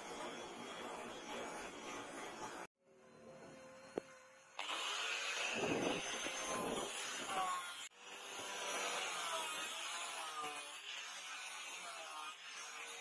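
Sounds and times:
angle grinder grinding metal: 0.0 - 2.7, 3.3 - 13.0.

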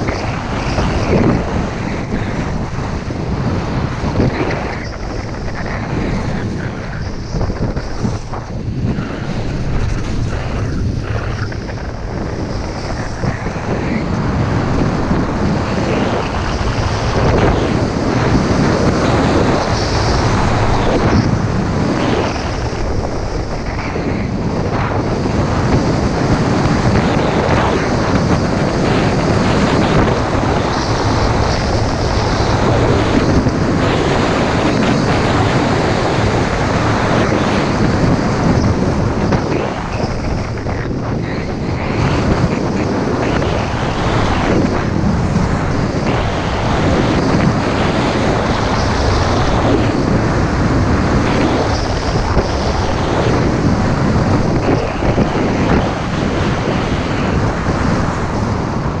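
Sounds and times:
skis scraping over hard snow: 0.0 - 58.5
wind rushing on microphone: 0.0 - 59.0.

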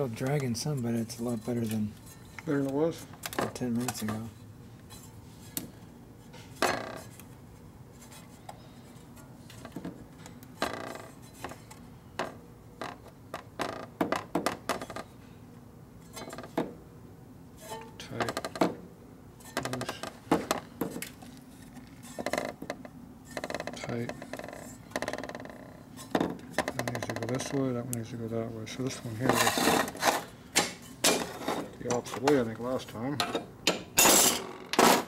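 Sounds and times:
metal clutch plates clinking and scraping: 33.2 - 35.0.

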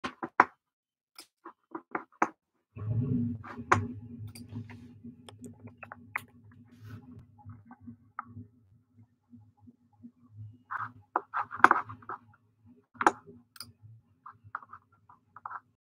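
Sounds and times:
low steady hum: 2.8 - 12.2.

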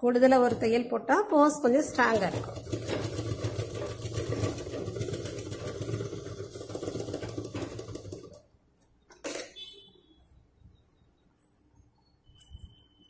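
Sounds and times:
sewing machine running: 1.7 - 8.6.

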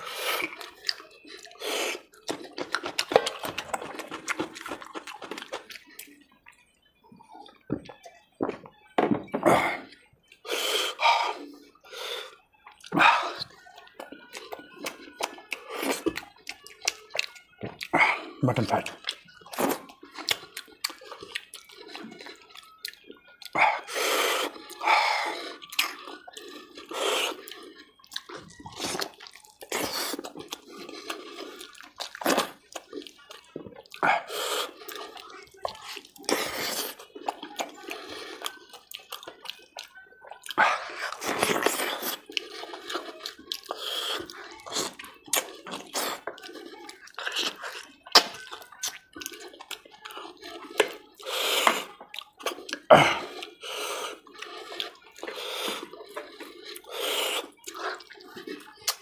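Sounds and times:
wet chewing and slurping: 0.0 - 8.7, 9.5 - 59.0.

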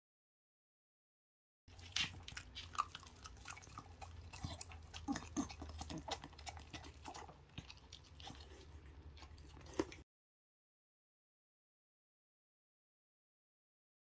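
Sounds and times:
dog chewing wetly: 1.7 - 10.0.

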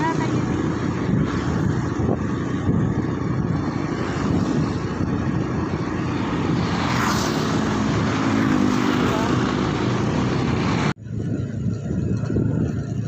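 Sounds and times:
motorcycle engine hum: 0.0 - 13.0
wind buffeting microphone: 0.0 - 13.0.

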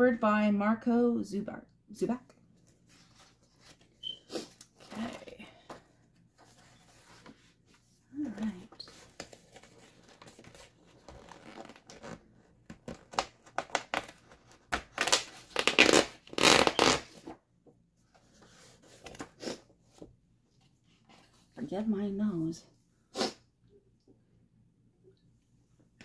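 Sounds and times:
pages turning: 2.6 - 5.2, 6.4 - 17.4, 18.2 - 19.6
paper crackling and rustling: 8.2 - 17.4
paper page tearing: 14.8 - 17.3.

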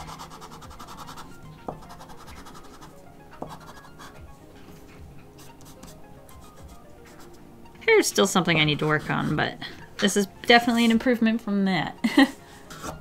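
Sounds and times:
pastel scratching on paper: 0.0 - 4.2, 5.4 - 7.4
quiet background music: 0.0 - 13.0.

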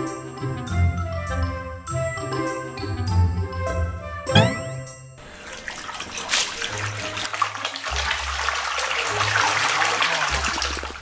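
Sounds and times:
water sloshing in a tub: 5.2 - 11.0.

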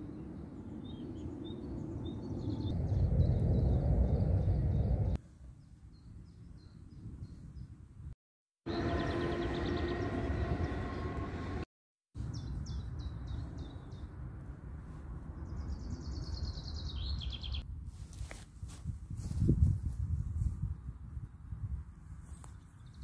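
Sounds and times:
wind rumbling on microphone: 0.0 - 11.6, 12.2 - 23.0
small birds chirping: 15.4 - 17.6.

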